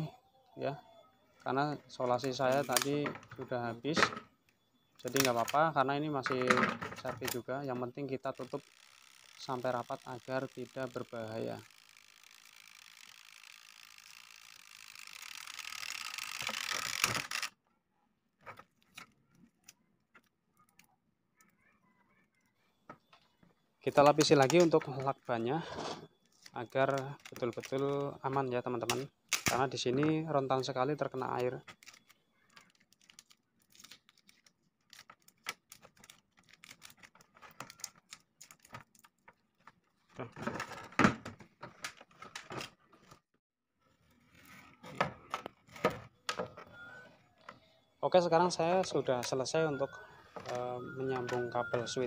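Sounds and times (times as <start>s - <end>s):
adhesive tape crackling: 8.3s - 17.5s, 31.7s - 39.3s
wires handled: 23.9s - 40.6s
plastic strip rustling: 31.7s - 39.4s.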